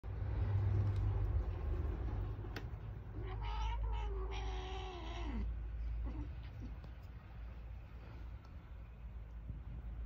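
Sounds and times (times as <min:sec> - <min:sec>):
low rumble: 0:00.0 - 0:04.0
cat meowing: 0:03.1 - 0:06.7.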